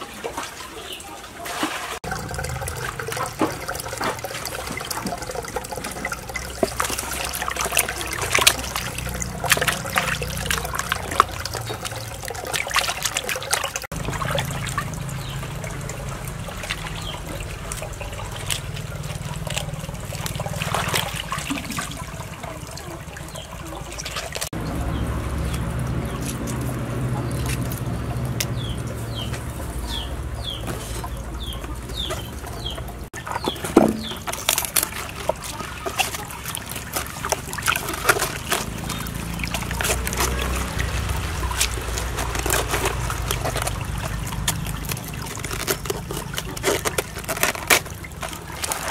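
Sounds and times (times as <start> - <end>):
water splashing in a basin: 0.0 - 48.9
bird chirping: 24.6 - 34.6
cabbage leaves peeled off: 33.2 - 48.9.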